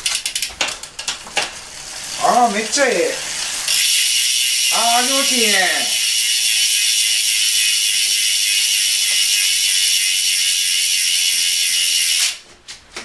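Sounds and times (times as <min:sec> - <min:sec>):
bike freehub ratcheting buzz: 0:00.0 - 0:00.6, 0:03.2 - 0:12.4.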